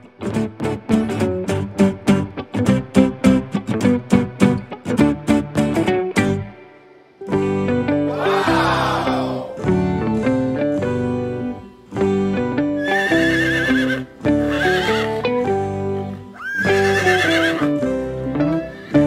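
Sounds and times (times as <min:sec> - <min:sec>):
cheerful background music: 0:00.0 - 0:19.0
horse-like whinny: 0:12.8 - 0:15.2, 0:16.4 - 0:17.8.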